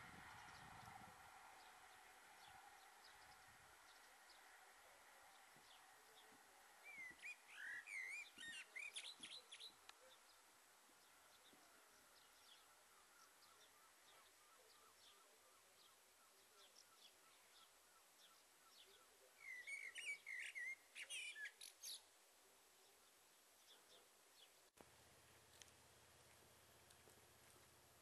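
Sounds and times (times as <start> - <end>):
faint low hum: 0.0 - 19.6, 22.1 - 28.0
twittering birdsong: 0.0 - 24.7
small birds chirping: 1.6 - 24.8.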